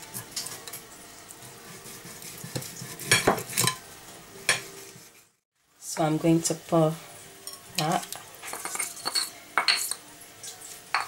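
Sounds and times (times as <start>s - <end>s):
knife scraping fish skin: 1.7s - 3.7s.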